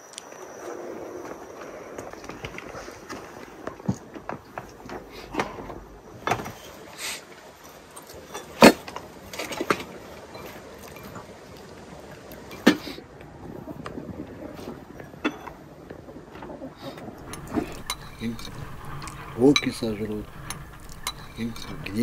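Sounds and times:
teapots and china bowl clinking: 0:09.4 - 0:11.2, 0:17.2 - 0:22.0
tea pouring: 0:17.1 - 0:22.0.

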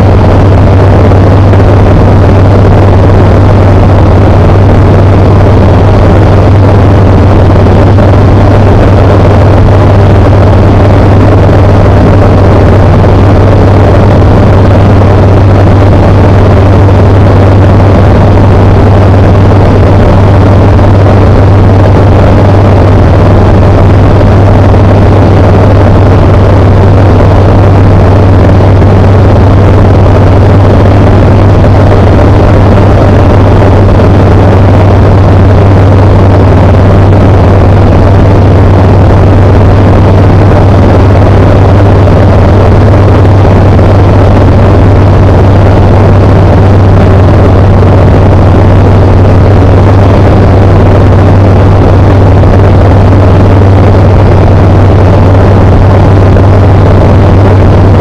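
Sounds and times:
light aircraft engine drone: 0:00.0 - 0:37.4.

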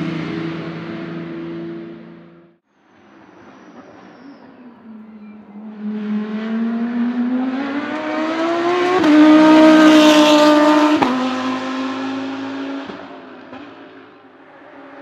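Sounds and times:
race car engine accelerating past: 0:04.8 - 0:15.0.

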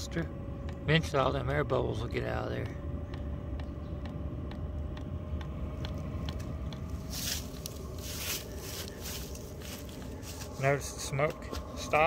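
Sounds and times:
fuel pump ticking: 0:00.0 - 0:08.0
heater fan and burner hum: 0:00.0 - 0:12.0.

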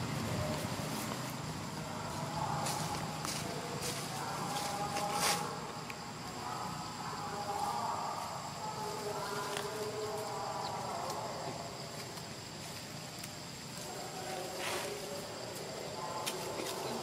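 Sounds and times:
high-pitched drone of insects: 0:00.0 - 0:17.0.

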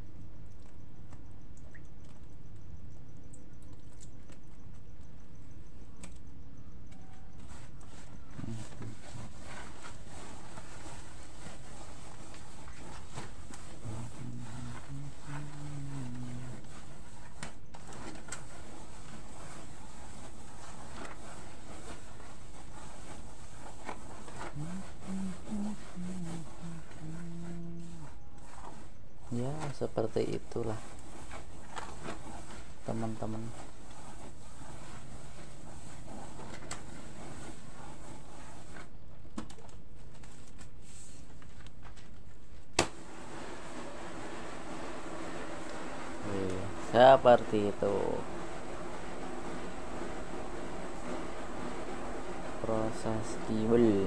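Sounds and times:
steady low hum: 0:00.0 - 0:39.1
hands rubbing flour in a tray: 0:06.8 - 0:39.1, 0:40.0 - 0:54.0.

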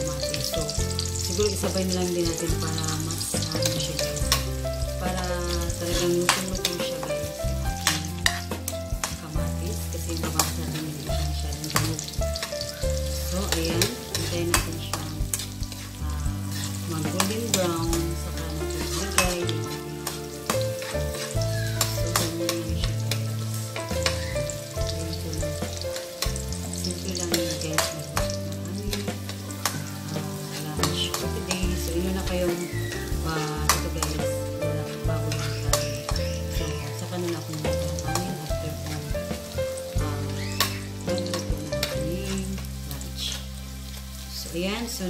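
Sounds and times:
garlic and onion sizzling in oil: 0:00.0 - 0:45.0
metal spatula scraping a wok: 0:05.5 - 0:09.3, 0:10.0 - 0:39.5.

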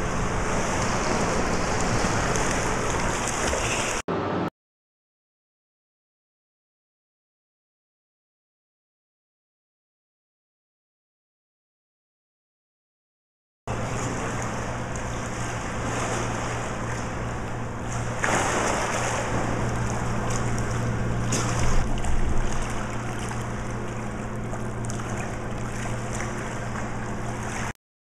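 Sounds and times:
rushing splashing water: 0:00.0 - 0:04.0, 0:13.8 - 0:27.7
low steady hum: 0:00.0 - 0:04.5, 0:13.7 - 0:27.8.

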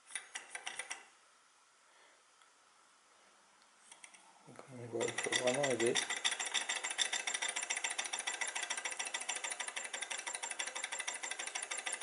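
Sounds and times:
small engine mechanical clatter: 0:04.9 - 0:12.0.

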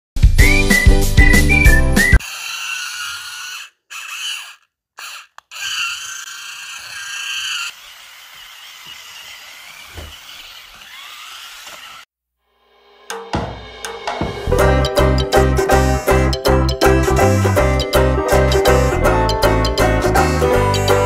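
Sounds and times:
toy car electric motors whining: 0:02.0 - 0:12.1.

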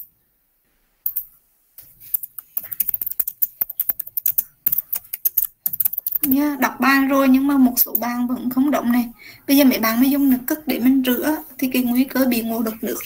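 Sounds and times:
keyboard key clicks: 0:02.2 - 0:06.3.

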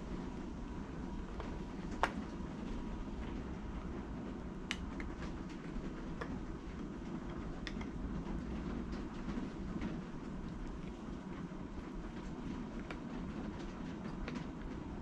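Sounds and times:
low rumbling background noise: 0:00.0 - 0:15.0.

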